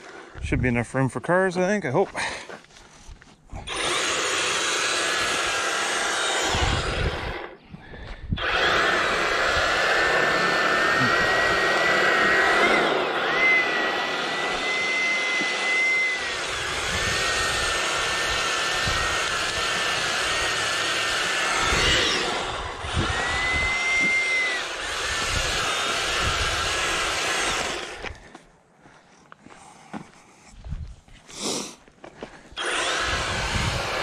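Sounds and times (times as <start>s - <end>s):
electric bristle brush whining: 3.6s - 7.6s, 8.4s - 28.2s, 32.6s - 34.0s.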